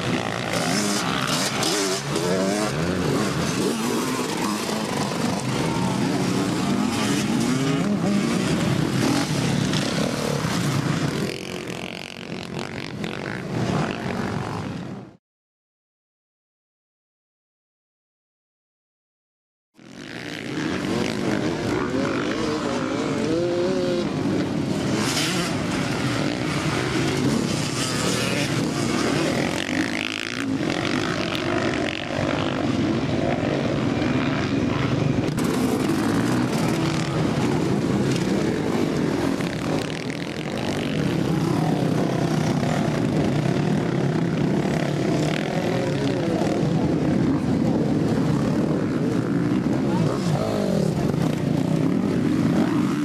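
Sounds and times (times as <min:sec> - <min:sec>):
dirt bike engines revving: 0:00.0 - 0:15.2, 0:19.8 - 0:53.0.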